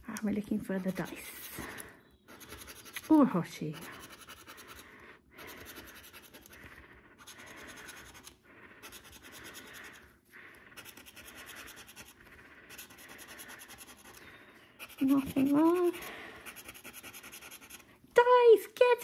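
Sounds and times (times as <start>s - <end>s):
scratching a scratch card: 2.3s - 4.8s, 5.4s - 10.0s, 10.7s - 14.2s, 14.8s - 17.9s.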